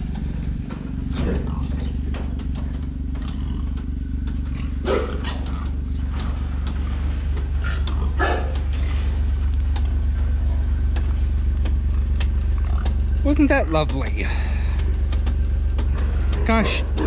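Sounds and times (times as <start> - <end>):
animal calling: 0.0 - 17.0
engine ticking: 0.0 - 17.0
utility vehicle engine idling: 0.0 - 17.0.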